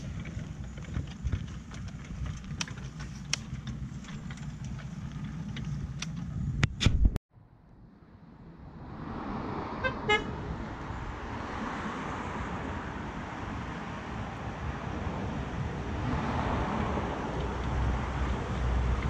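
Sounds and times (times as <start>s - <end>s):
wheels rumbling on rails: 0.0s - 7.2s, 8.1s - 19.0s
short horn toots: 9.8s - 10.3s.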